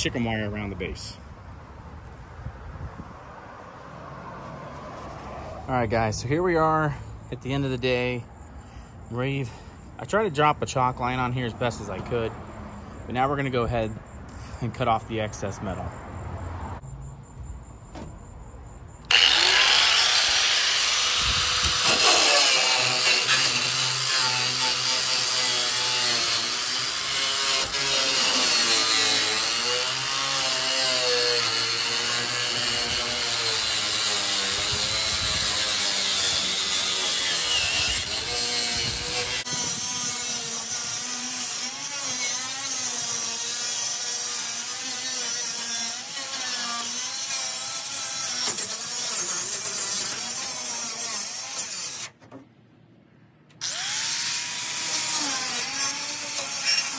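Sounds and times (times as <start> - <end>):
angle grinder cutting tin roofing: 19.0 - 52.3, 53.6 - 56.9.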